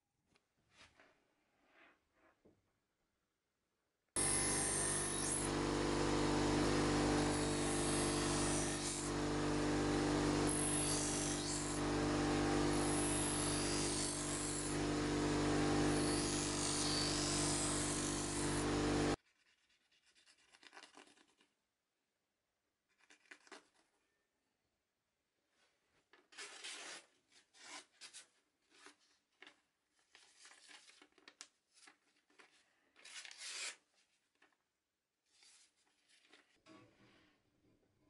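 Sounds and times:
bench grinder motor hum: 4.2 - 19.2.

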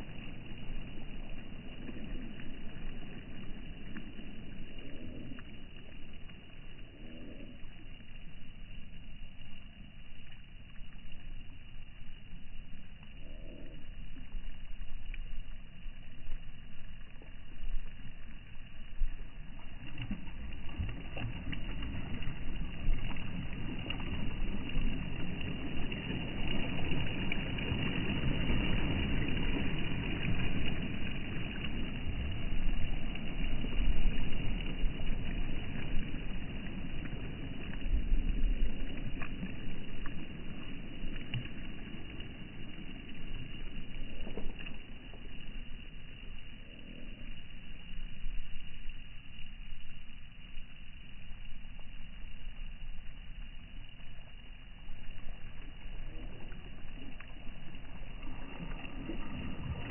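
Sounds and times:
faint clicks: 1.2 - 24.1, 38.8 - 49.5
waves washing on pebble shore: 58.2 - 59.9.

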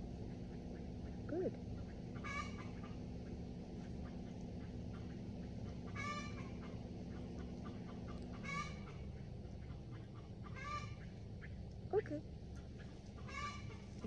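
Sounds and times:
chicken calling: 2.2 - 3.0, 4.6 - 11.6, 13.2 - 14.0.

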